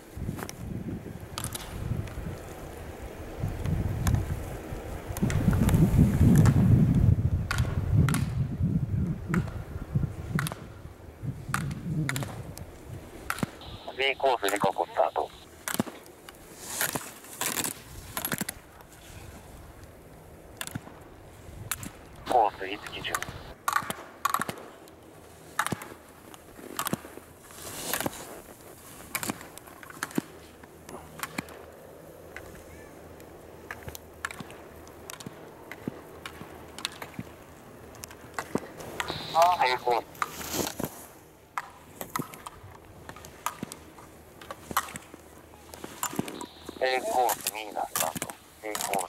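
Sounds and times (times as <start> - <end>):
wind rumbling on microphone: 0.0 - 13.9, 23.1 - 23.6
skis striking plastic gate poles: 10.3 - 10.7, 11.5 - 12.4, 23.1 - 24.8, 25.5 - 26.0, 26.6 - 31.6, 33.6 - 37.4, 40.2 - 49.0.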